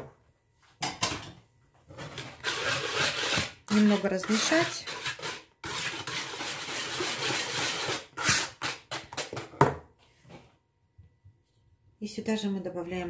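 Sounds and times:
whisk swishing in bowl: 0:02.4 - 0:08.8.

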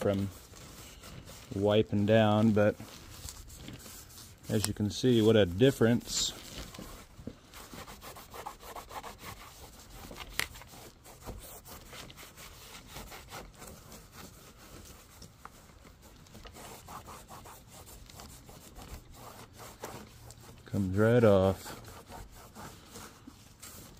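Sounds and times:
rag wiping plastic panel: 0:00.0 - 0:23.9.

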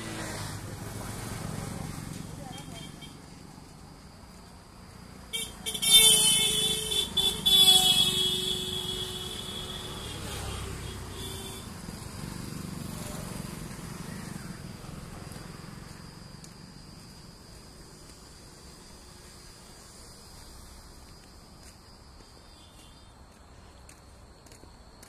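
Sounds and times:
road traffic passing: 0:00.0 - 0:25.0
insects trilling: 0:00.1 - 0:25.0
vehicle horn honking: 0:05.3 - 0:11.7.

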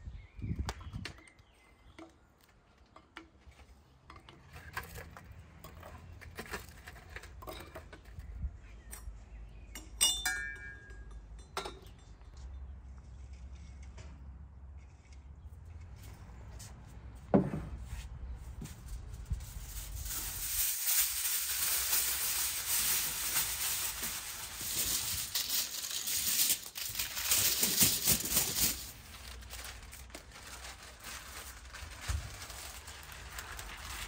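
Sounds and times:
kitchenware ringing: 0:09.8 - 0:12.2
kitchenware clinking: 0:09.8 - 0:12.3.

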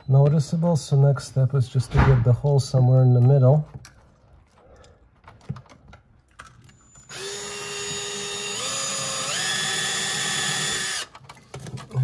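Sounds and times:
power drill whining: 0:06.7 - 0:11.2.

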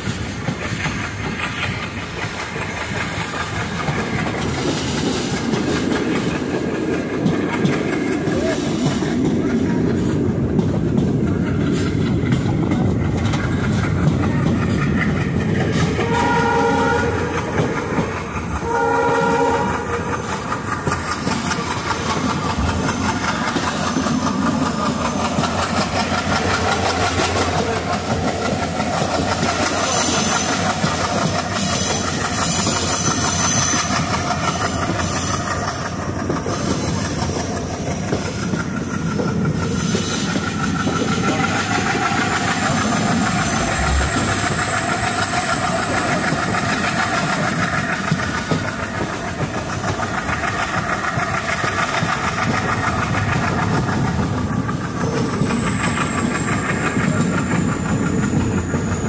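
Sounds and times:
train rumble and clatter: 0:00.0 - 0:59.0
train horn blasts: 0:16.0 - 0:17.7, 0:18.6 - 0:20.1.

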